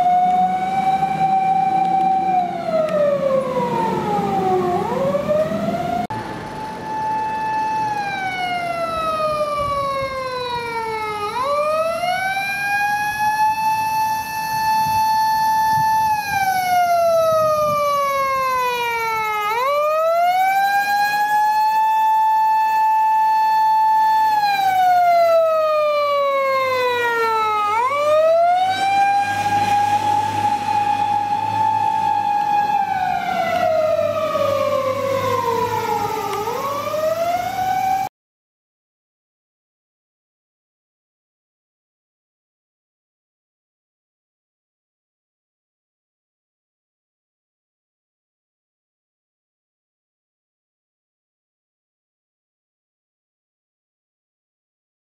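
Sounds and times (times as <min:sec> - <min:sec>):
electronic siren wailing: 0:00.0 - 0:38.1.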